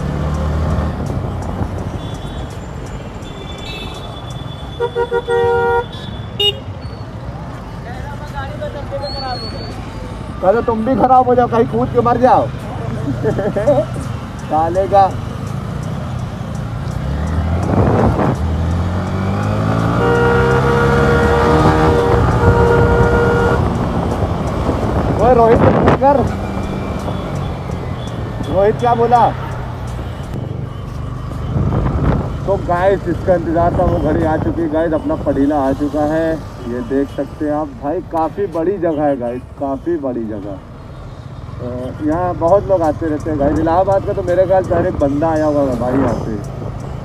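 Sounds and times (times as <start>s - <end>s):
street traffic: 0.0s - 47.0s
vehicle horn honking: 3.2s - 6.8s, 19.8s - 23.8s
motorcycle engine accelerating: 17.0s - 25.2s
wind rush: 17.6s - 18.4s, 21.8s - 27.0s.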